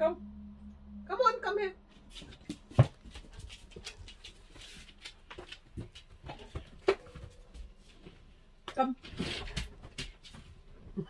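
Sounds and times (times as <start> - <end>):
dog paws clicking on wooden floor: 2.0 - 10.6.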